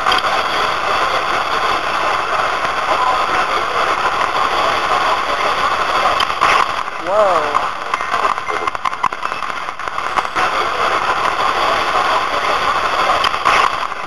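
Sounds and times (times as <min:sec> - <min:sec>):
radio static with fragments: 0:00.0 - 0:14.0.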